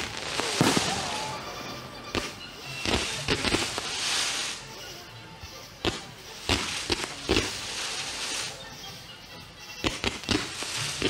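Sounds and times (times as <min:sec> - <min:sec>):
fireworks bangs: 0:00.0 - 0:04.8, 0:05.8 - 0:08.6, 0:09.8 - 0:11.0
music playing: 0:00.0 - 0:11.0.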